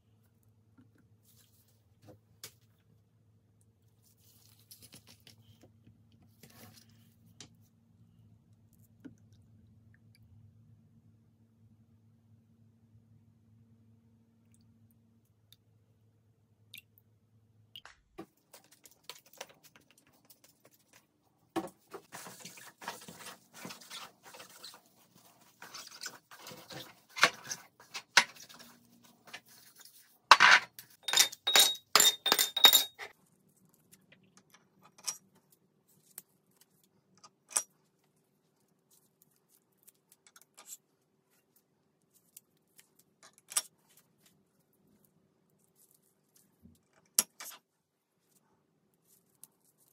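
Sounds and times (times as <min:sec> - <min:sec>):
metal tins clinking: 0:30.3 - 0:33.1.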